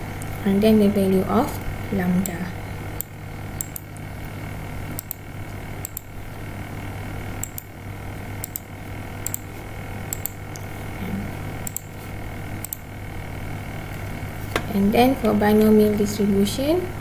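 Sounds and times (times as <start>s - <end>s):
steady low hum: 0.0s - 17.0s
computer mouse clicking: 3.0s - 4.1s, 4.9s - 5.2s, 5.8s - 6.1s, 7.4s - 7.7s, 8.4s - 9.5s, 10.1s - 10.7s, 11.6s - 11.9s, 12.6s - 12.9s.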